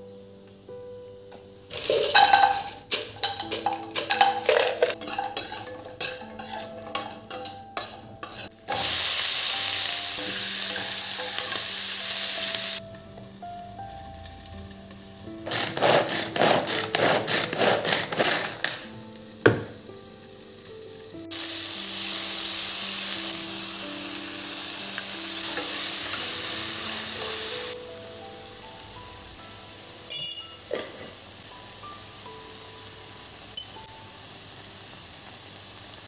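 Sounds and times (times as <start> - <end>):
vegetables sizzling in hot oil: 0.6 - 36.0
spatula scraping pan: 1.7 - 8.8, 15.4 - 18.9.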